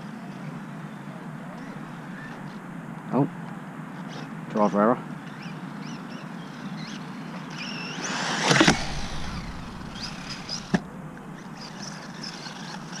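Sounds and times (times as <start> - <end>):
electric motor whining: 6.8 - 13.0
rush and thump: 8.0 - 11.9
sharp knock of landing: 8.2 - 11.3.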